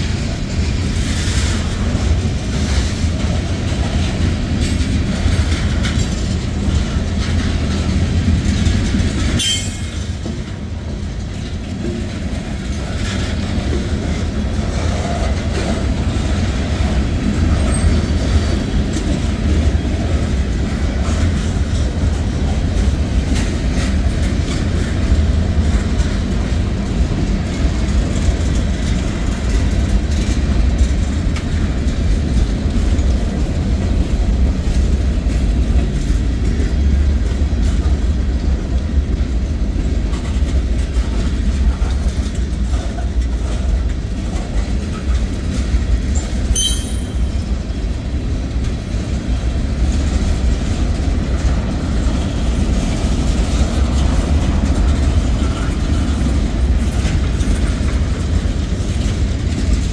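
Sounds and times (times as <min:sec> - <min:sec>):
train wheels rumbling on rail: 0:00.0 - 0:59.9
brief high squeak: 0:46.6 - 0:47.3.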